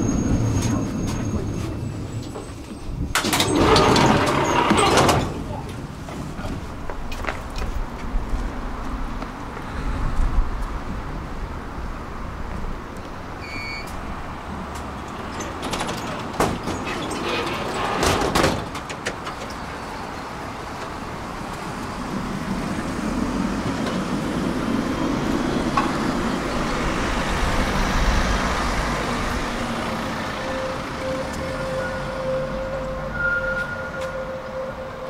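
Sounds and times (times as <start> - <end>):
tram running: 0.0 - 35.0
brief high beep: 30.6 - 34.4.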